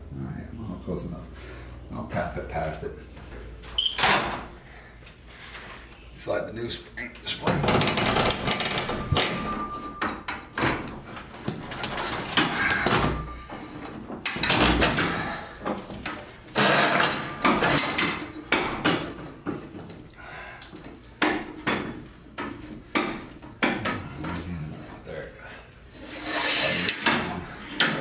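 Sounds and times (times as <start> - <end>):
metal clanks and knocks: 7.4 - 20.0, 20.8 - 24.5, 26.2 - 28.0
metal scraping: 23.8 - 28.0.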